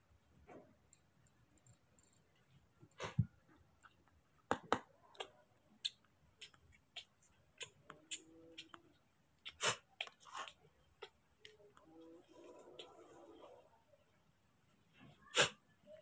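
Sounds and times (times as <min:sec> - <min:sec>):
baby monkey mouth smacking: 0:04.5 - 0:08.8, 0:09.4 - 0:11.8.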